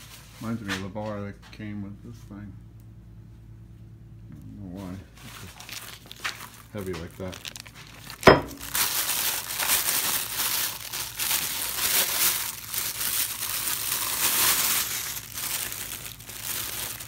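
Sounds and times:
plastic bag crinkling: 5.1s - 17.0s.

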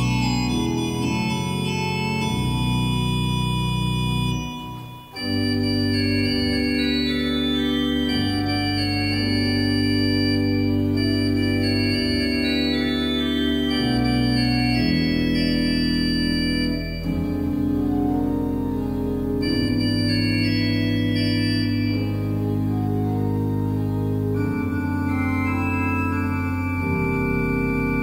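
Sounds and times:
pipe organ chords: 0.0s - 28.0s.

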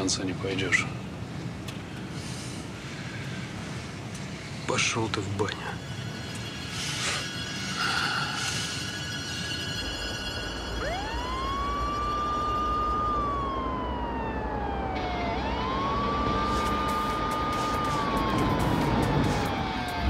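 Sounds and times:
police siren wailing: 9.0s - 20.0s.

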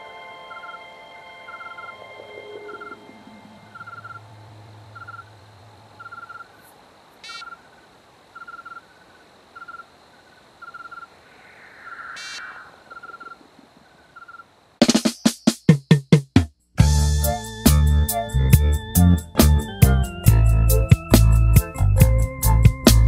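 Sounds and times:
frog-like chirps: 0.5s - 5.4s, 6.0s - 16.2s
sharp single calls: 6.0s - 7.7s.

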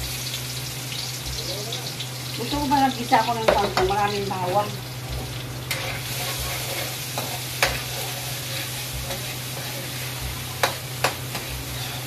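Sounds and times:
garlic sizzling in oil: 0.0s - 12.0s
spatula knocking on pan: 3.4s - 4.0s, 10.6s - 11.6s
spatula stirring in wok: 5.3s - 12.0s.

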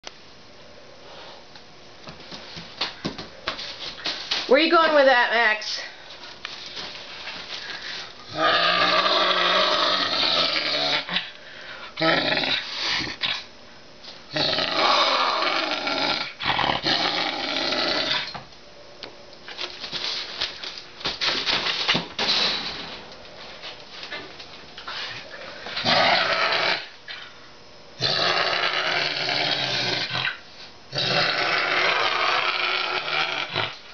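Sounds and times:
lynx growling: 8.3s - 11.2s, 12.0s - 13.4s, 14.3s - 18.3s, 25.8s - 27.0s, 28.0s - 33.8s.

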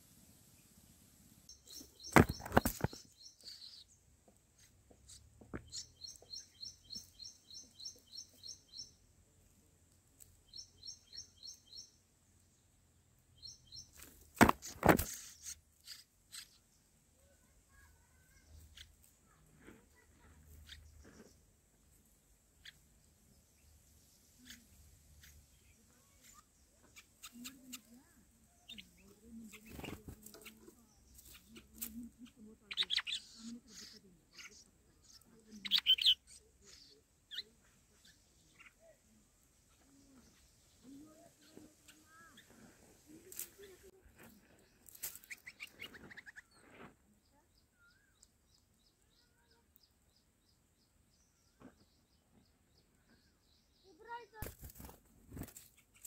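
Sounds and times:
nestlings begging chirps: 1.5s - 9.0s, 10.2s - 12.0s, 13.3s - 16.9s, 20.5s - 21.4s, 23.6s - 38.8s, 43.1s - 46.8s.

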